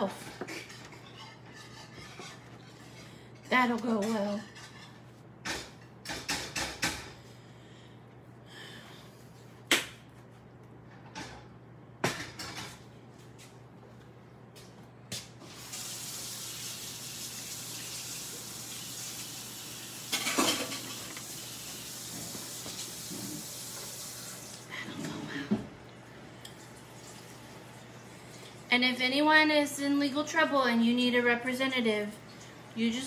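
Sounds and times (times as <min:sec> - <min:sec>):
kitchen tap running: 0:15.4 - 0:24.8, 0:26.4 - 0:28.7.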